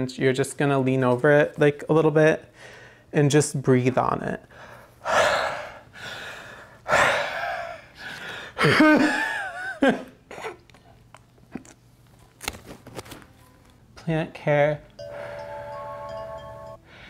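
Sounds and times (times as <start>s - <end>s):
person breathing hard: 2.5s - 3.1s, 4.5s - 8.6s.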